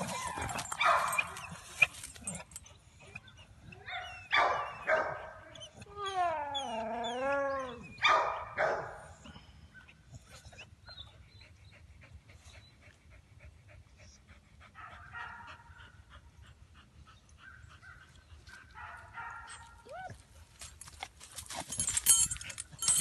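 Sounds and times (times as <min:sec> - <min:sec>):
dog whining: 0:00.0 - 0:08.1
dog barking: 0:00.8 - 0:01.3, 0:03.9 - 0:05.4, 0:08.0 - 0:09.1, 0:18.8 - 0:19.7.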